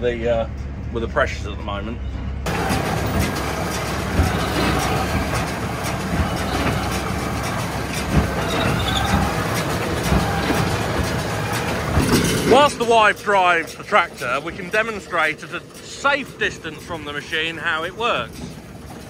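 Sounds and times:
irregular knocks: 2.5 - 12.7
tractor and baler running: 2.5 - 19.0.

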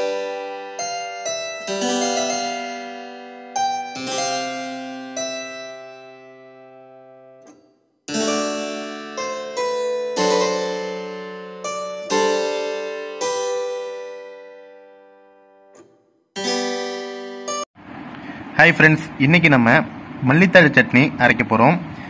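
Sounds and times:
keyboard chords: 0.0 - 17.7.

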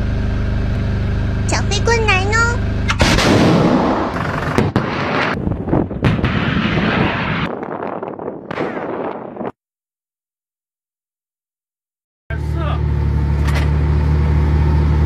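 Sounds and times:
low rumble: 2.6 - 9.5
rocket rushing roar: 2.8 - 9.5
sharp cracks: 2.9 - 5.4, 6.0 - 9.5
missile launch blast: 2.9 - 9.5.

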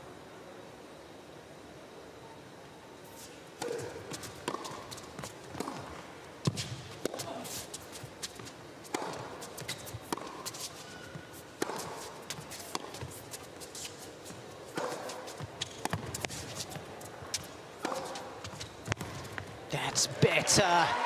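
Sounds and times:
racket hitting tennis ball: 3.6 - 19.4
footsteps on hard court: 3.6 - 19.6.

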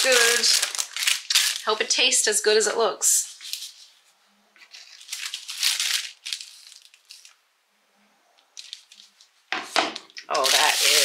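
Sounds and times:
rustling and crinkling handling: 0.0 - 1.9, 3.2 - 7.4, 8.6 - 11.0.

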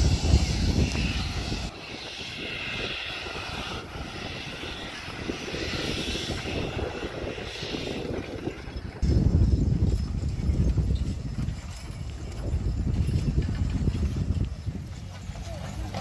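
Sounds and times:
machinery droning with hiss: 0.0 - 8.6.

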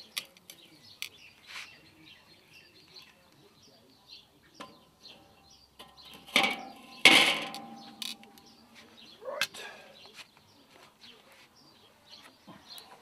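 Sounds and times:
metal tongs clinking on charcoal: 0.0 - 1.2, 4.6 - 8.6
birds chirping: 0.0 - 13.0
steel grate clanking onto grill: 4.6 - 8.6.

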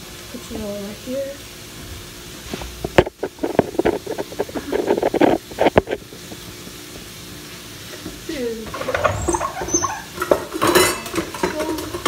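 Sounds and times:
meat frying in a skillet: 0.0 - 12.0
short falling squeak: 8.8 - 10.2.

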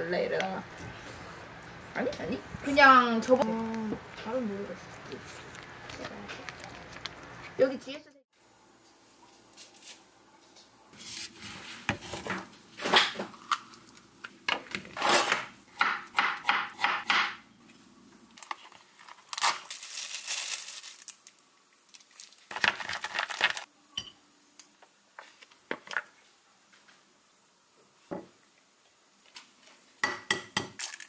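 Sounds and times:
plastic packaging crinkling and tearing: 18.3 - 23.7.

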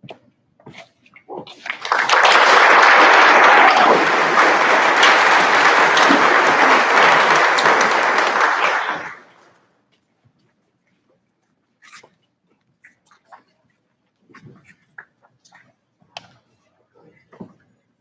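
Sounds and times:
crowd applauding: 1.6 - 9.6.

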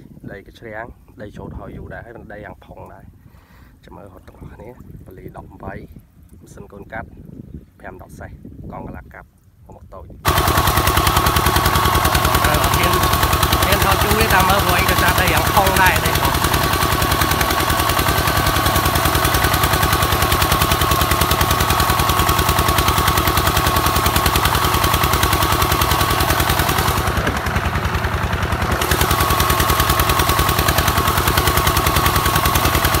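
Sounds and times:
diesel engine chugging: 10.2 - 33.0
steady whine: 10.3 - 33.0.

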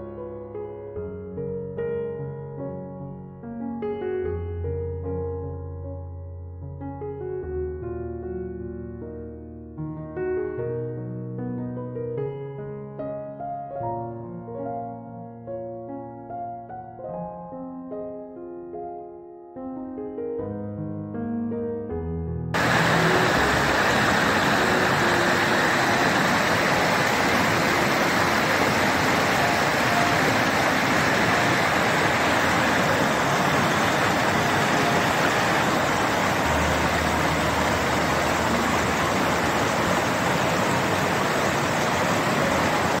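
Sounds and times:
stream rushing over boulders: 22.6 - 43.0.

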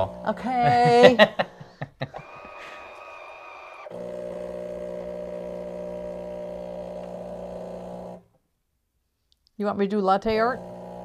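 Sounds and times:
espresso machine pump humming: 0.0 - 0.9, 2.2 - 8.2, 10.3 - 11.0.

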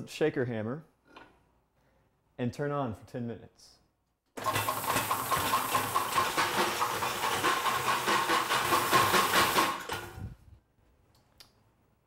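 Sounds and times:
sieve shaker motor running: 4.4 - 10.2.

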